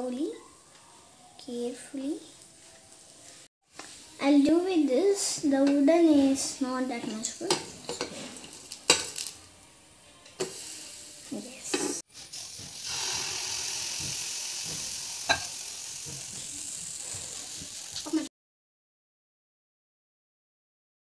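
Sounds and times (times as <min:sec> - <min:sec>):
batter sizzling in a pan: 0:05.1 - 0:18.3
spatula scraping a pan: 0:11.8 - 0:17.8.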